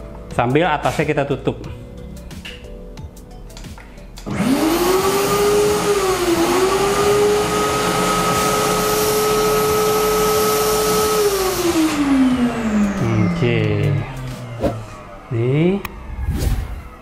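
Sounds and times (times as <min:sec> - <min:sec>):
vacuum cleaner motor whining: 0:04.2 - 0:17.0.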